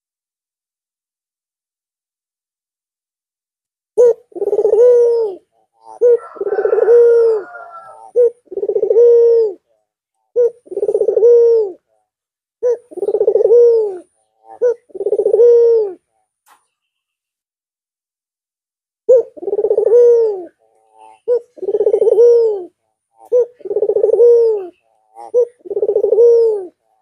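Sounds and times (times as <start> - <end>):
dove cooing: 4.0 - 9.7, 10.3 - 11.9, 12.6 - 16.1, 19.1 - 27.0.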